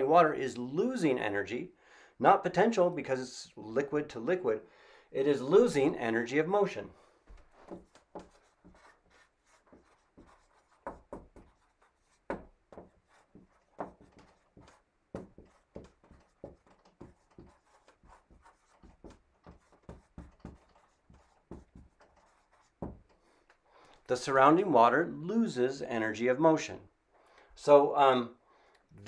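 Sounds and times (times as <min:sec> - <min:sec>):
marker writing on whiteboard: 0:07.3 - 0:23.6.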